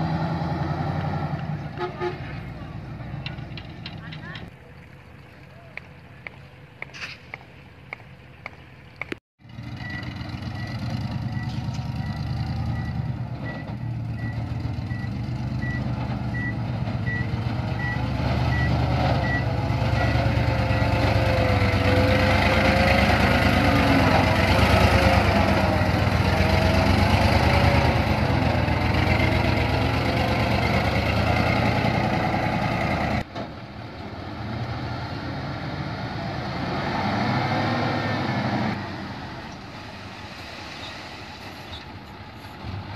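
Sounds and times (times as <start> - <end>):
engine whine: 0.0 - 42.9
truck engine under load: 0.0 - 42.9
reversing beeper: 9.8 - 20.3.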